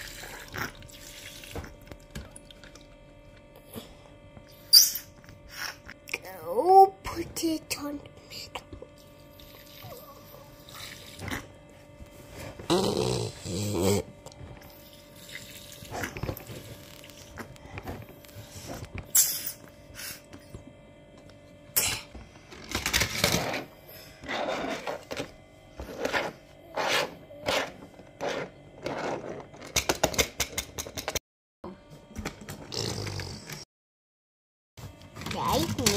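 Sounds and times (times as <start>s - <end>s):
plastic toy parts clicking and scraping: 22.5s - 23.6s.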